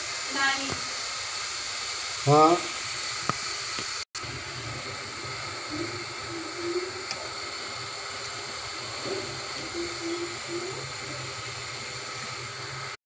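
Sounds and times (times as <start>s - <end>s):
machinery hum and hiss: 0.0s - 13.0s
faint short wavering tones: 5.6s - 7.1s, 8.9s - 11.4s.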